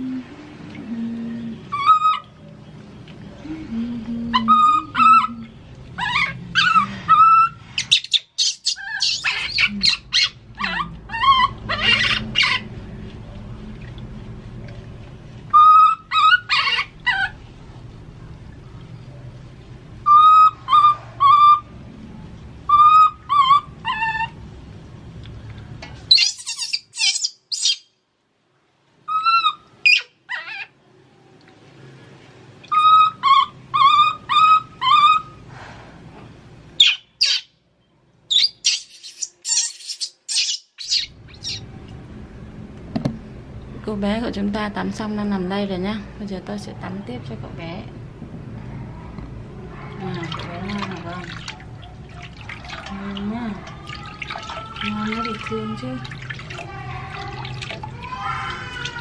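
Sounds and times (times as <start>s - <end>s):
baby monkey crying: 6.0s - 12.7s, 26.1s - 27.8s, 38.3s - 41.6s.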